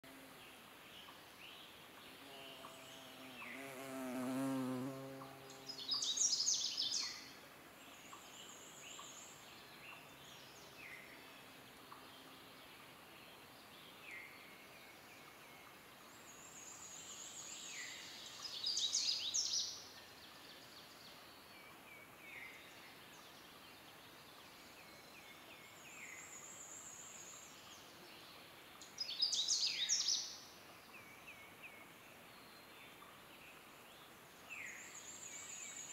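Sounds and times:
insect buzzing past: 0:02.1 - 0:07.3.

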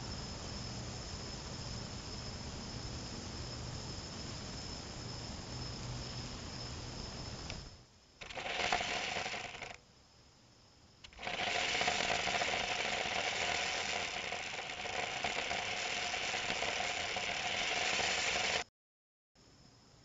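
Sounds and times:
small electric motors whirring: 0:08.2 - 0:09.8, 0:11.0 - 0:18.7.

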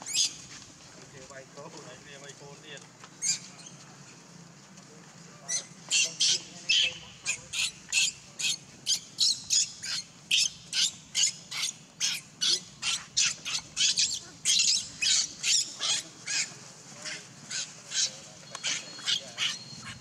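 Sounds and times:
baby monkey shrill squeals: 0:00.1 - 0:00.4, 0:03.2 - 0:03.5, 0:05.5 - 0:16.5, 0:17.5 - 0:20.0.

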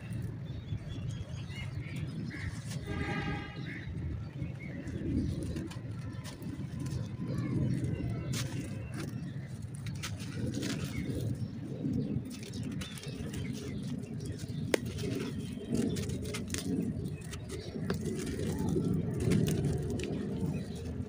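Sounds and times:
dry clay crumbling by hand: 0:04.8 - 0:21.0.

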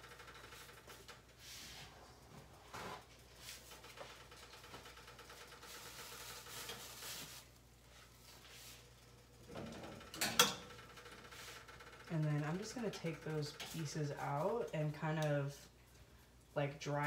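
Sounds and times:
low steady hum: 0:05.7 - 0:17.0.

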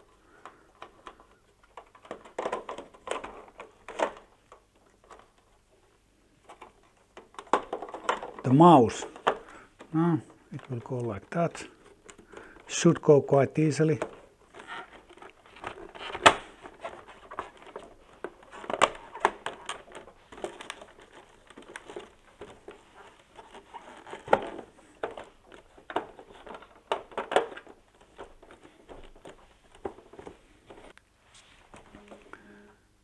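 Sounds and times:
plastic covers clicking and rattling: 0:00.0 - 0:31.0
plastic snaps: 0:13.9 - 0:31.0.

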